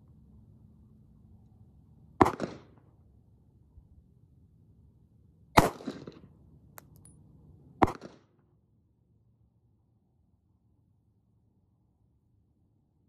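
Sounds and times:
pistol shots with echo: 0:02.2 - 0:02.7, 0:05.6 - 0:06.2, 0:07.8 - 0:08.2.

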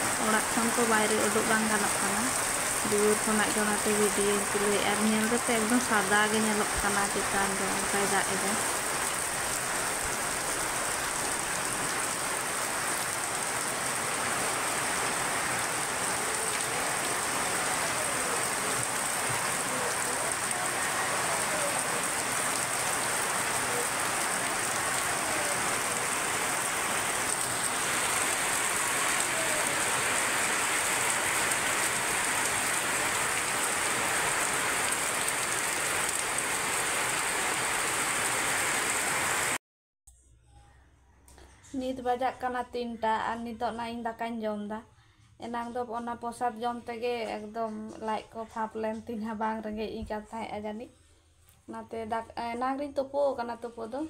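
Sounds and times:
heavy rain on metal roof: 0:00.0 - 0:39.6.

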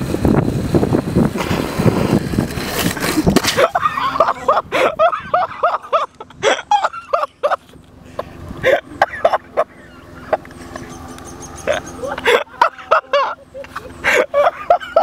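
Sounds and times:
faint outdoor background: 0:00.0 - 0:15.0
person laughing hard: 0:03.1 - 0:11.0, 0:11.6 - 0:15.0.

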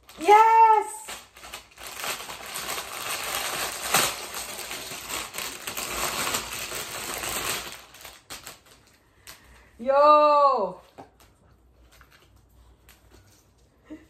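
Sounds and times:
plastic bag crinkling: 0:00.0 - 0:09.7.

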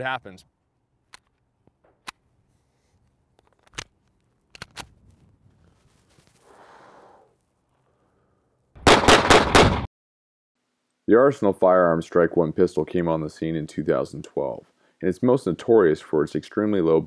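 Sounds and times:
rapid pistol shots: 0:08.8 - 0:09.9.

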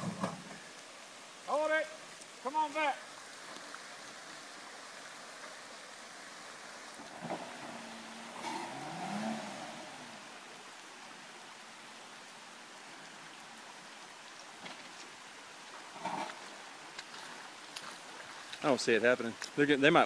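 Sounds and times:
rushing creek water: 0:00.0 - 0:20.0
car engine revving: 0:07.1 - 0:10.4.

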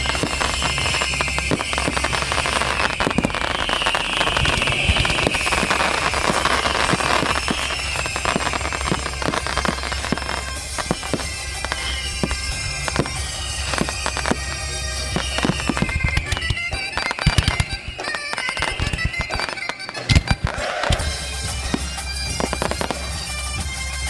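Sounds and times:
fireworks crackling and popping: 0:00.0 - 0:24.0
fireworks whistles falling in pitch: 0:00.0 - 0:24.0.

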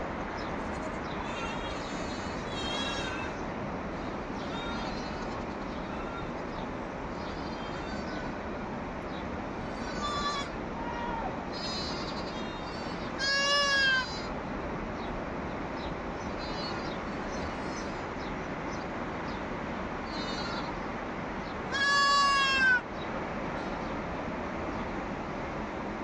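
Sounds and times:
fainter higher bleats: 0:00.6 - 0:03.4, 0:04.4 - 0:06.4, 0:07.2 - 0:08.3, 0:09.7 - 0:14.3, 0:20.1 - 0:20.7, 0:21.7 - 0:22.8
goat bleating loudly: 0:00.6 - 0:03.4, 0:04.4 - 0:06.3, 0:07.4 - 0:08.3, 0:09.7 - 0:14.3, 0:20.1 - 0:20.7, 0:21.7 - 0:22.8.

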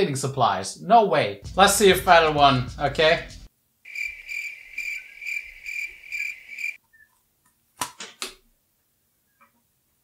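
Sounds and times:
cricket chirping: 0:03.9 - 0:06.8.

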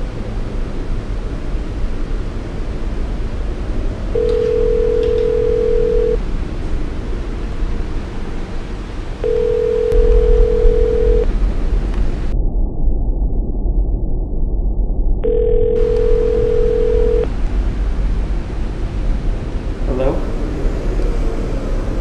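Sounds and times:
steady low hum: 0:00.0 - 0:22.0
phone ringing electronic tone: 0:04.2 - 0:06.2, 0:09.2 - 0:11.3, 0:15.2 - 0:17.3.

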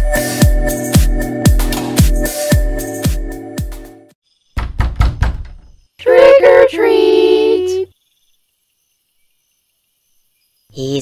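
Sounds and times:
knocking on a door: 0:04.6 - 0:05.8
high-pitched cartoon voices calling: 0:06.0 - 0:07.9.

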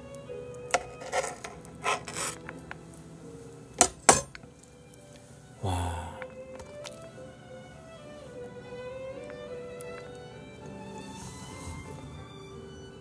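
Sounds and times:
soft background music: 0:00.0 - 0:13.0
knife scraping on plate: 0:00.8 - 0:02.5.

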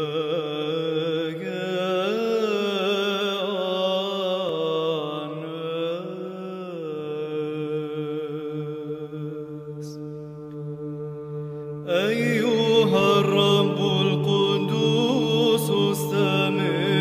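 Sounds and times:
choir chanting: 0:03.4 - 0:17.0.

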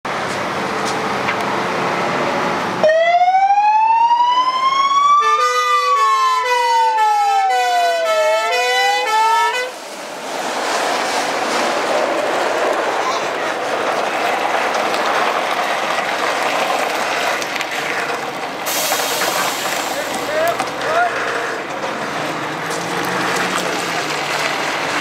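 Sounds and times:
fire truck siren wailing: 0:02.0 - 0:09.9
hi-lo two-tone siren: 0:02.8 - 0:09.7
diesel truck engine running: 0:09.1 - 0:25.0.

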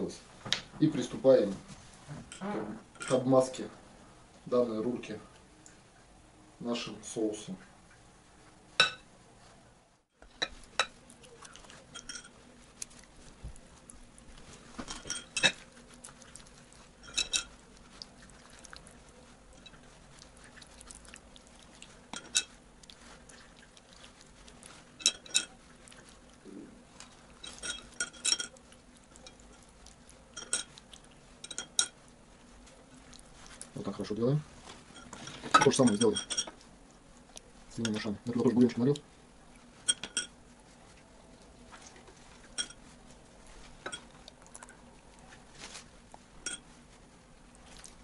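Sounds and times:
brush clinking against glass bowl: 0:11.7 - 0:12.9, 0:14.8 - 0:15.7, 0:16.8 - 0:17.6, 0:22.1 - 0:23.1, 0:24.6 - 0:26.0, 0:27.3 - 0:29.7, 0:30.3 - 0:32.0, 0:34.8 - 0:36.6, 0:39.8 - 0:40.4, 0:42.4 - 0:42.9, 0:43.7 - 0:44.2, 0:46.4 - 0:46.8.

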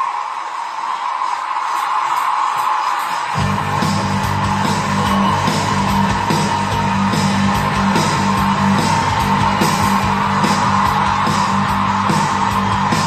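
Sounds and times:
music with strong bass and beat: 0:03.0 - 0:13.0.

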